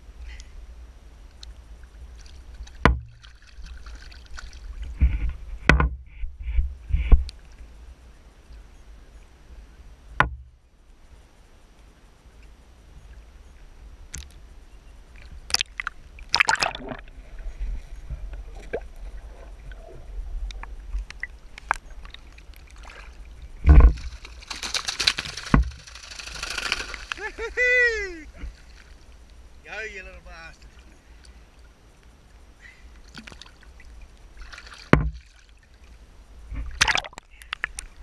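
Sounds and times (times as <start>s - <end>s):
low steady rumble: 0.0s - 38.0s
water sloshing against hull: 1.3s - 7.8s, 12.4s - 27.3s, 28.3s - 29.6s, 30.5s - 38.0s
water splashing: 2.0s - 5.2s, 15.2s - 31.0s, 33.0s - 38.0s
knocks: 5.0s - 6.0s.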